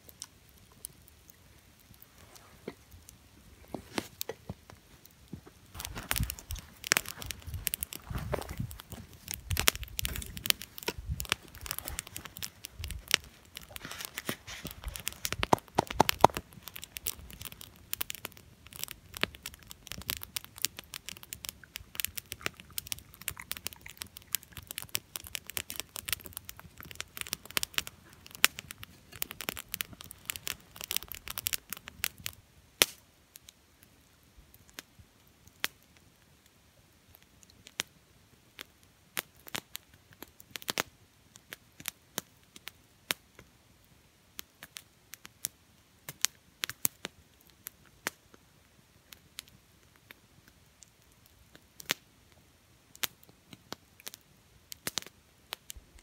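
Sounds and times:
campfire crackling and popping: 0.0 - 56.0
close rustling and handling noise: 3.6 - 16.6.

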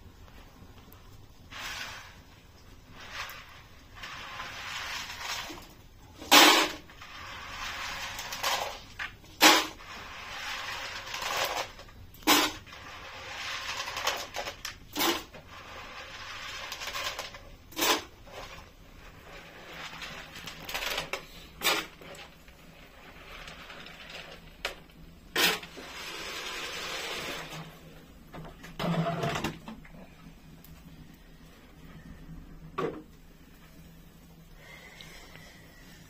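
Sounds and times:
grains rubbed in bowl of water: 1.4 - 28.2.

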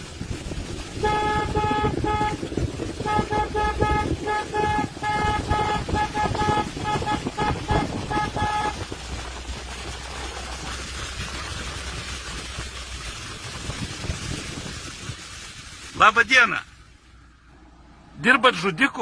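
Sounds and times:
car running rumble inside cabin: 0.0 - 19.0
car horn honks: 1.0 - 8.8.

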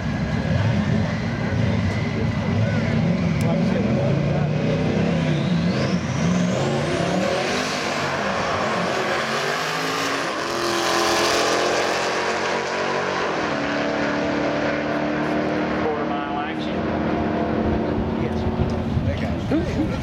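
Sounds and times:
race cars accelerating hard: 0.0 - 20.0.

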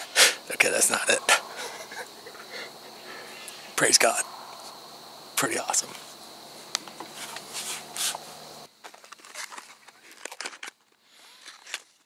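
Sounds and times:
clothing and gear rustling: 6.6 - 12.0.

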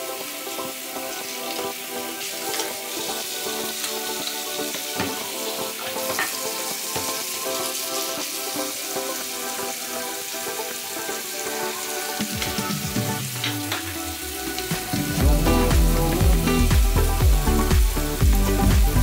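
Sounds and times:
background music: 0.0 - 19.0
tap water running into sink: 4.6 - 7.2.

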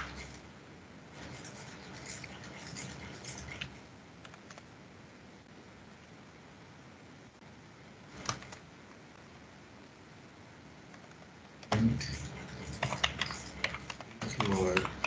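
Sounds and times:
steady low hiss: 0.0 - 15.0
keyboard typing: 1.3 - 4.7, 8.2 - 8.6, 10.9 - 15.0.

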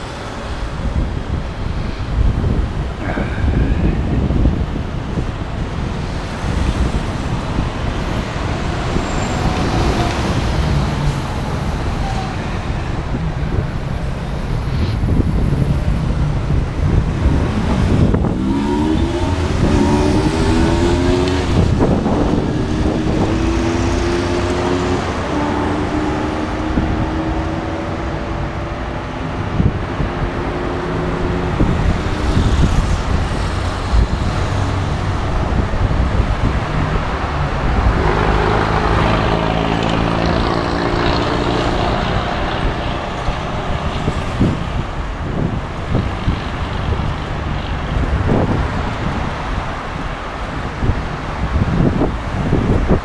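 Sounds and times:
road traffic: 0.0 - 53.0
microphone rumble: 0.8 - 49.4
vehicle engine revving: 14.6 - 44.7.

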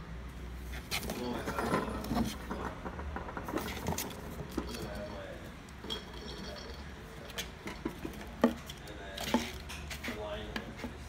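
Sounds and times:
plastic toy balls knocking: 2.4 - 4.7.

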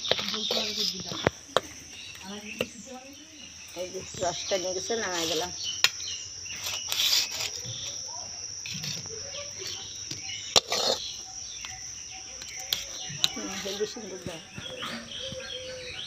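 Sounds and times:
high insect drone: 0.0 - 16.0
metal spatula scraping a steel pan: 6.5 - 7.9, 10.5 - 11.1.

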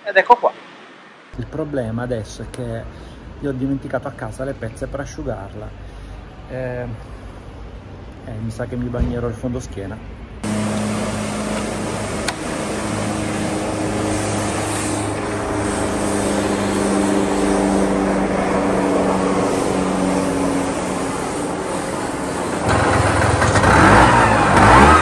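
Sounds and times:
scooter engine idling and revving: 10.4 - 25.0.

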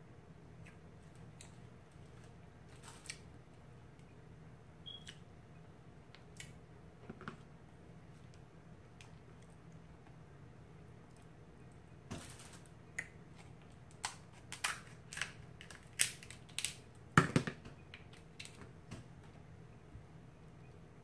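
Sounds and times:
crab shells cracking: 12.4 - 16.9.

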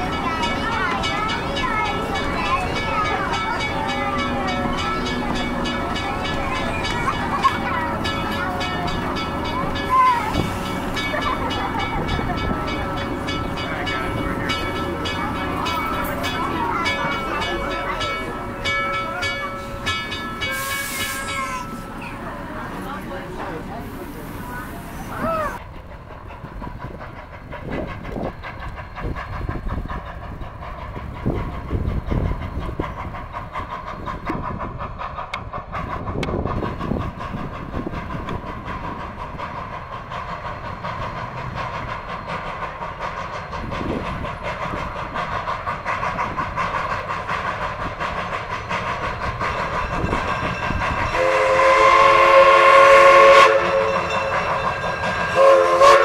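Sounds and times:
steam locomotive running: 0.0 - 56.0
steam whistle blowing: 51.1 - 54.5, 55.3 - 56.0.

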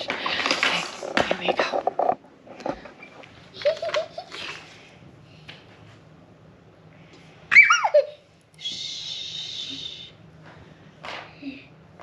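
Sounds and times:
child giggling: 3.5 - 4.6, 7.5 - 8.3
child high-pitched squeal: 7.5 - 9.8.

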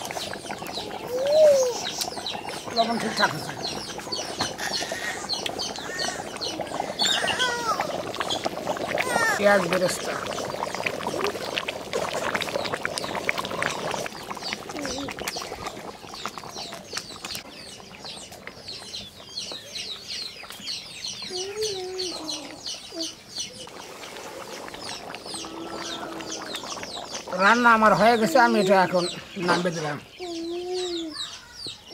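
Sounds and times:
small birds chirping: 0.0 - 31.9
clicks and scraping in a pot: 1.7 - 20.8, 23.4 - 28.5
hen clucking: 1.8 - 11.5.

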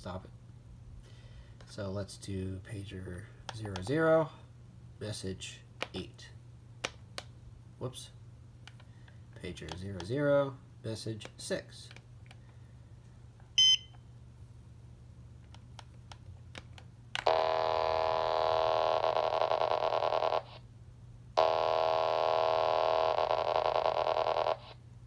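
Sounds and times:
buzzy data tone from radio: 17.3 - 20.6, 21.4 - 24.8.

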